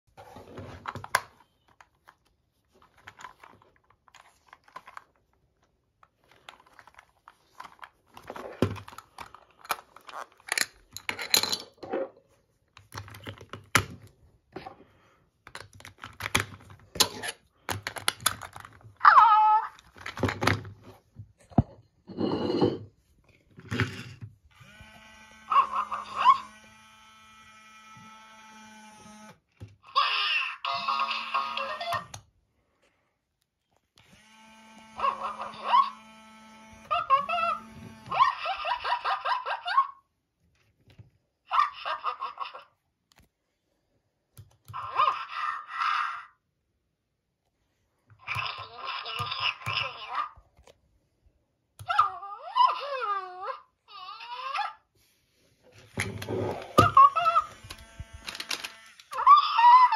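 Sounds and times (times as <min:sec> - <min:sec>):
plastic battery compartment rattling: 0:15.5 - 0:18.8, 0:57.5 - 0:59.0.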